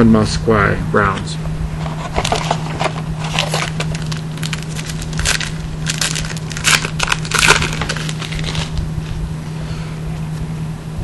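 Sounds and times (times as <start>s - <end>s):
foil wrapper crinkling and tearing: 2.1s - 9.2s.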